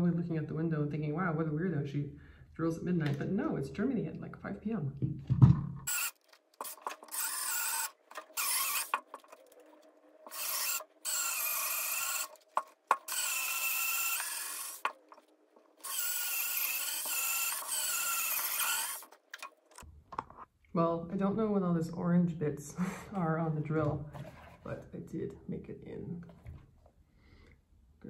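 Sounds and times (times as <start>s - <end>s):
cordless drill boring into wood: 5.9s - 9.6s, 10.3s - 19.5s.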